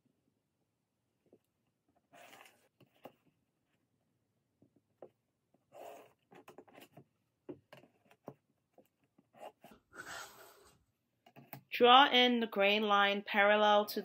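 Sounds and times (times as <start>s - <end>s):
pencil scratching on paper: 5.6s - 7.0s, 9.2s - 10.8s
ruler sliding across paper: 9.4s - 10.8s.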